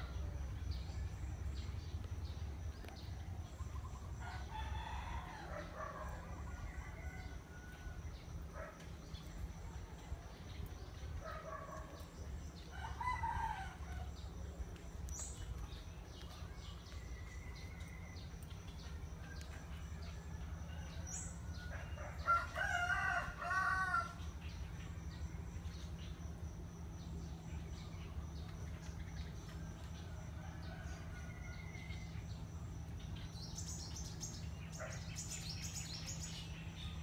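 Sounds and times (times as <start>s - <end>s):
steady low hum: 0.0s - 37.0s
rooster crowing: 21.6s - 24.2s.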